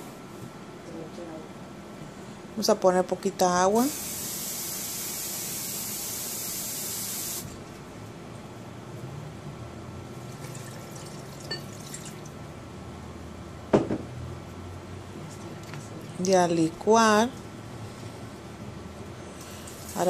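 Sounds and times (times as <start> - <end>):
water running from a tap: 5.6 - 7.4, 10.4 - 12.3, 19.4 - 20.0.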